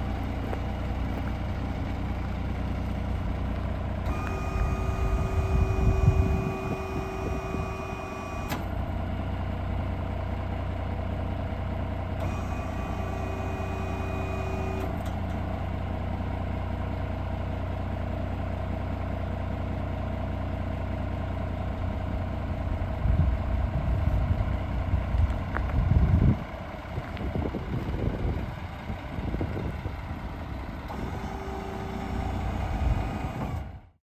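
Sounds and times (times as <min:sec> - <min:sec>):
diesel truck engine idling: 0:00.0 - 0:34.0
hydraulics folding: 0:04.0 - 0:08.8, 0:30.9 - 0:33.7.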